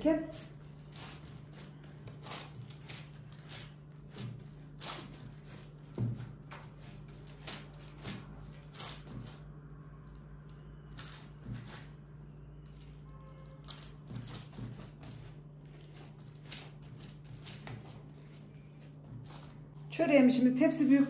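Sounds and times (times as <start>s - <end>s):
hands patting dough: 0.0s - 9.6s
baking paper rustling: 0.0s - 10.3s, 10.9s - 21.0s.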